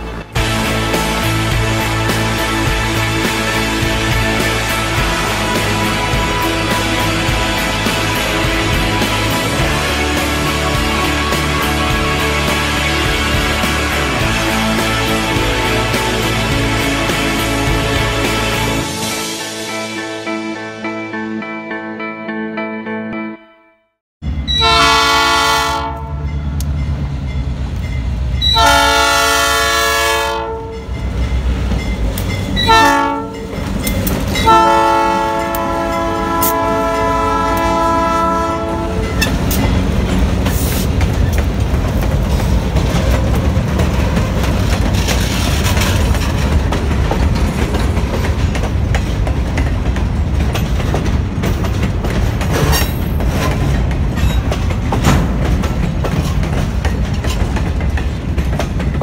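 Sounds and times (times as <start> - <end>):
locomotive engine rumble: 0.0 - 19.1, 24.2 - 59.0
locomotive air horn blasts: 24.5 - 26.3, 28.4 - 30.9, 32.6 - 33.5, 34.4 - 39.5
train wheels clacking on rails: 30.7 - 37.9, 39.0 - 59.0.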